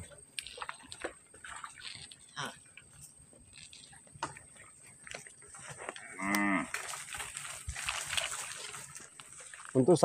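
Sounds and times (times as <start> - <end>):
cow mooing: 5.9 - 6.8.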